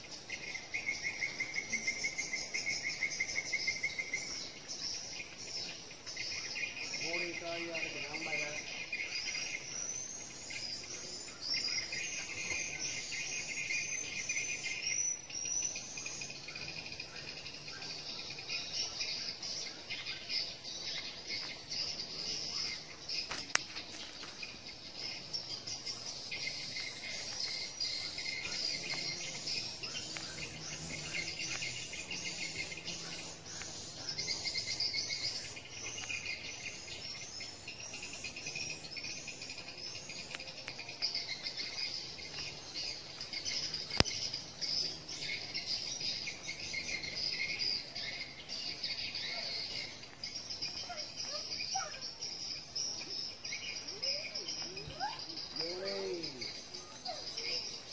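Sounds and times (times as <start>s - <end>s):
insect chorus chirring: 0.0s - 57.9s.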